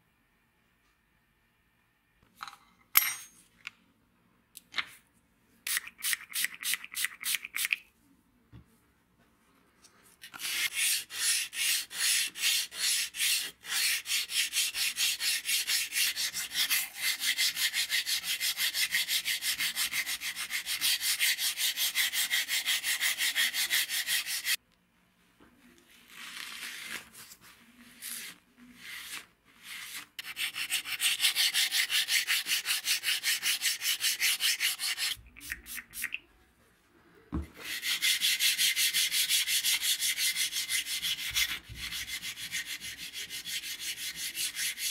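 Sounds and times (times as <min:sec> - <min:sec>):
abrasive paper rubbing steel blade: 0:10.3 - 0:24.6.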